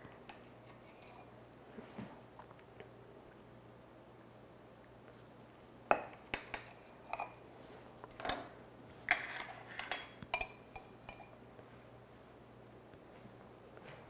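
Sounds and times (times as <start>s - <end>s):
knife and cake server clinking: 9.8s - 11.4s.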